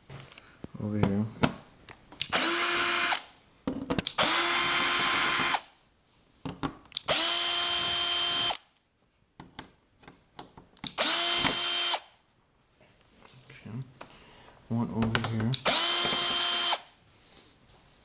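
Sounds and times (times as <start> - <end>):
power drill whirring: 2.2 - 3.4, 4.1 - 5.8, 7.0 - 8.7, 10.9 - 12.2, 15.6 - 17.0.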